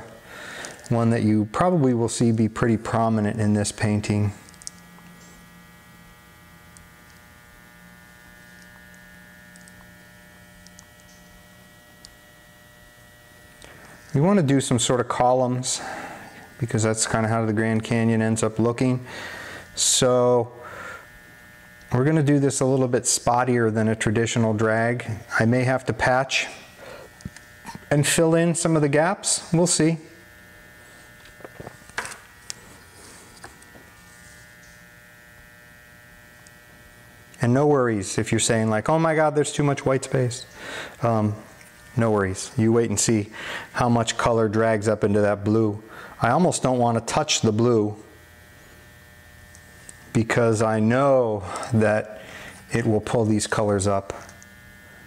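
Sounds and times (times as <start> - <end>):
electrical hum: 0.0 - 55.0.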